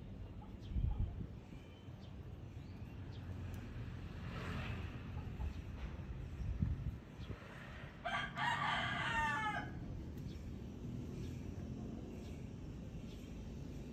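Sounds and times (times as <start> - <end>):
rooster crowing: 8.0 - 9.9.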